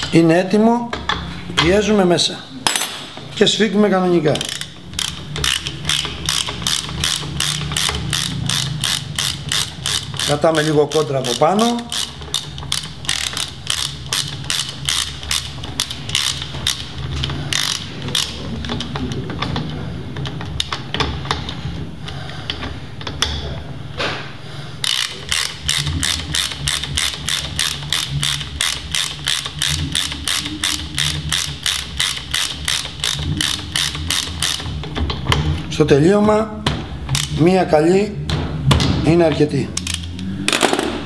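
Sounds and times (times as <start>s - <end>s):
ratchet wrench clicking: 4.3s - 18.9s, 24.8s - 34.9s, 37.1s - 37.4s, 39.8s - 40.8s.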